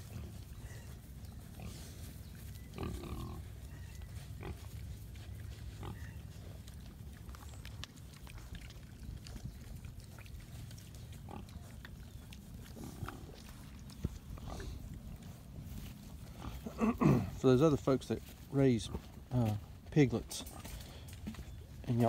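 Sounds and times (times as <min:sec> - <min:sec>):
piglets grunting: 0:00.0 - 0:04.8, 0:05.6 - 0:10.6, 0:11.2 - 0:15.1, 0:16.2 - 0:17.4.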